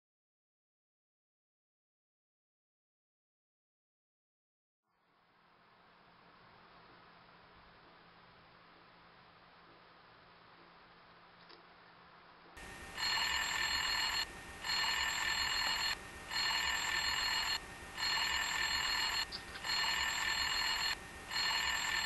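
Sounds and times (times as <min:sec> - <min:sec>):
electronic telephone ringing: 0:12.6 - 0:22.0.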